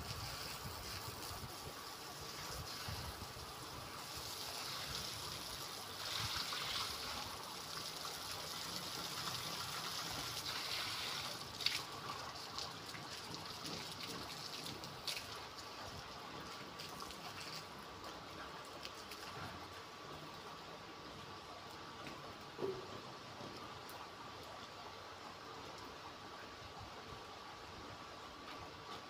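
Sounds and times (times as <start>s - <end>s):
hose water splashing on concrete: 0.0s - 19.9s.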